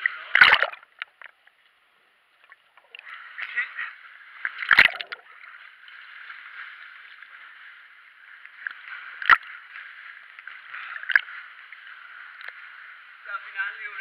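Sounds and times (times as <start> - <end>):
sea water sloshing in a cave: 2.6 - 13.2.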